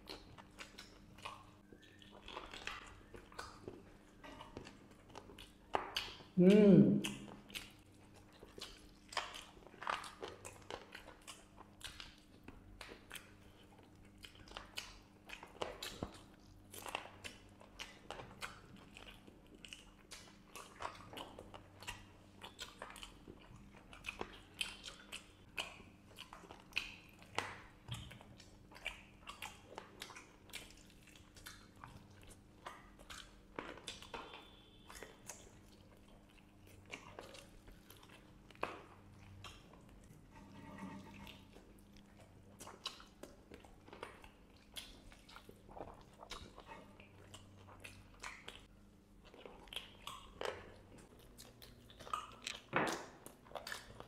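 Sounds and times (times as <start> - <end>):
chewing and crunching mouth sounds: 0.0 - 6.4, 7.0 - 54.0.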